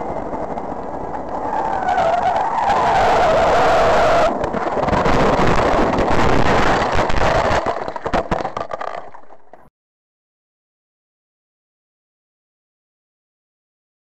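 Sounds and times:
car tyres squealing: 1.3 - 5.5.

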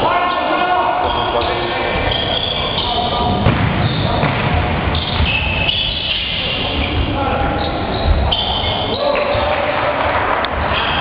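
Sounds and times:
players and spectators voices: 0.0 - 11.0
shoe squeaks: 1.0 - 4.2, 4.9 - 9.6.

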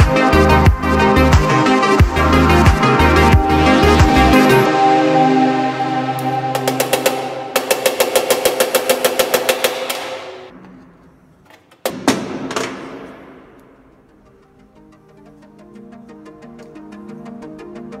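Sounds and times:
background music: 0.0 - 18.0
heavy knocks: 11.5 - 14.0.

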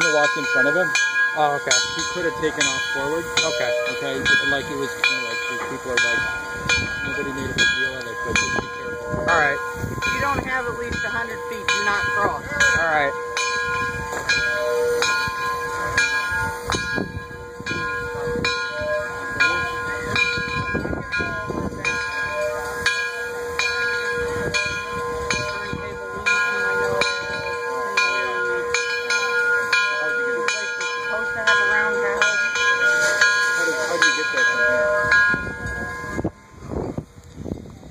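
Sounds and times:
steam locomotive bell ringing: 0.0 - 37.9.

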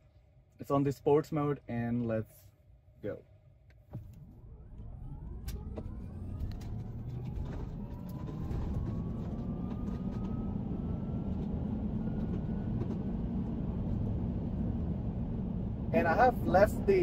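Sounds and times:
low road noise rumble: 0.0 - 17.0
electric motors whining: 4.2 - 13.3.

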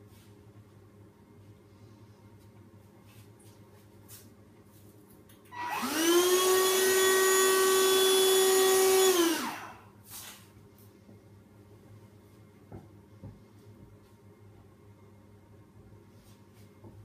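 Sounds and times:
stick vacuum cleaner running: 5.5 - 9.9.

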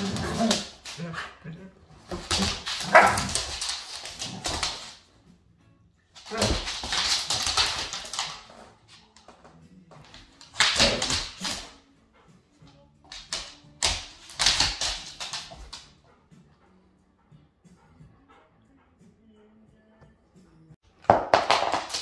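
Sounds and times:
claws clicking on floor: 0.0 - 1.1, 2.0 - 5.0, 6.2 - 11.7, 13.0 - 15.9, 21.0 - 22.0
dogs scuffling: 0.0 - 1.2, 1.9 - 5.1, 6.2 - 11.8, 13.0 - 15.9.

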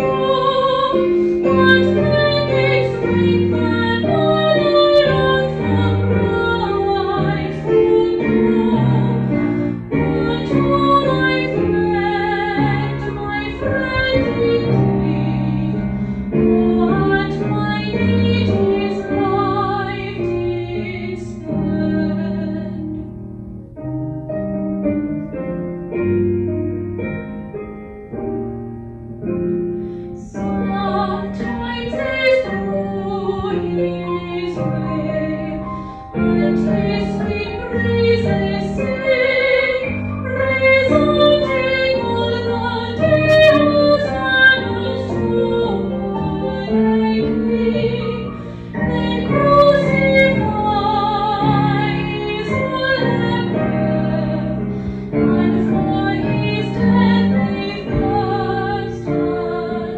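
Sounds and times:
woman singing a hymn: 0.0 - 22.9, 30.2 - 54.6, 55.2 - 59.9
piano accompaniment: 0.0 - 59.9.

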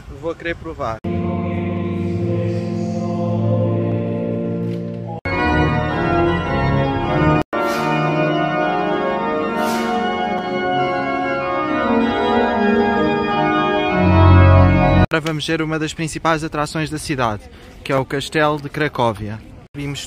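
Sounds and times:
organ playing sustained chords: 1.0 - 15.1.

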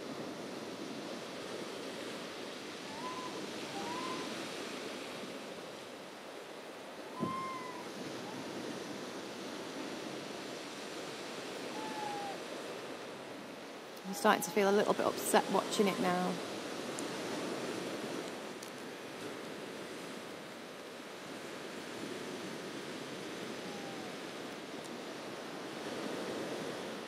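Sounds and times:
surf washing on shingle beach: 0.0 - 27.0
faint high calls: 2.8 - 4.4, 7.0 - 8.6, 11.6 - 12.4, 23.4 - 24.4.

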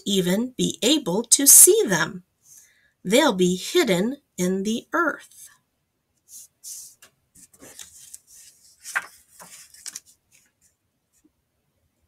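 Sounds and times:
paper page rustling: 6.2 - 11.3.

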